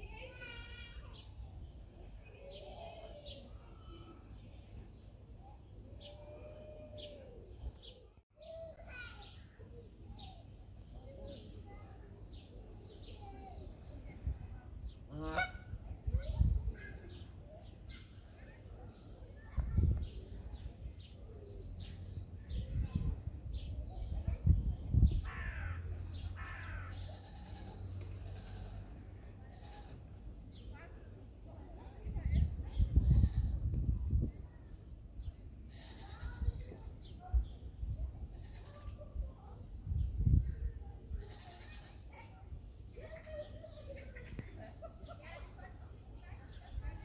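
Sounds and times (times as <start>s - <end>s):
small birds chirping: 0.1s - 47.0s
harsh bird calls: 25.1s - 30.7s.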